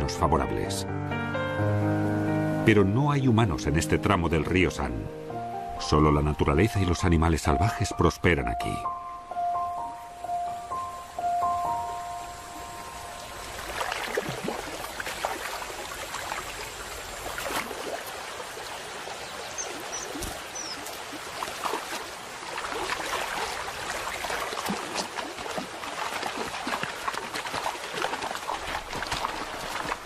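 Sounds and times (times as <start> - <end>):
river trickling over stones: 10.1 - 30.0
small splashes: 13.2 - 30.0.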